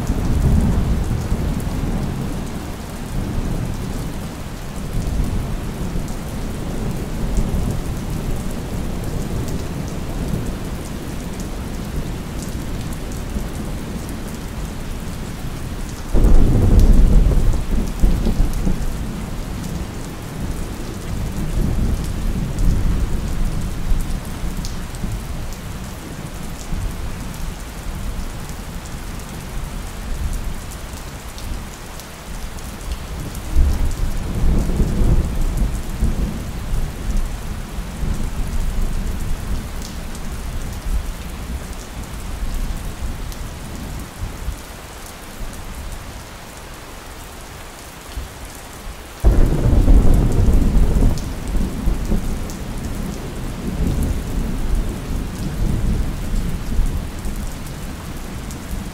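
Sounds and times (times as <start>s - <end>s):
steady rain: 0.0s - 58.9s
rolling thunder: 16.2s - 18.8s, 49.2s - 56.7s
loud thunderclap: 49.2s - 52.3s.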